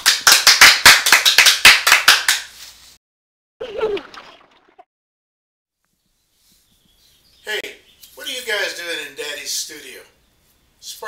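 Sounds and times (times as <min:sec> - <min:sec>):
hands clapping: 0:00.0 - 0:02.6.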